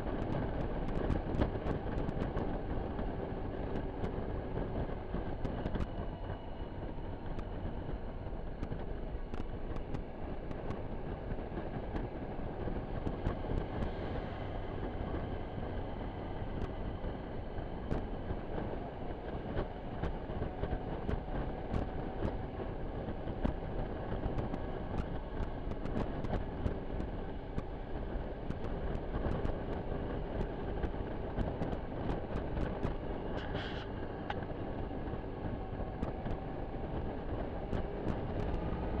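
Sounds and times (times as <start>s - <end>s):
wind and road noise: 0.0s - 39.0s.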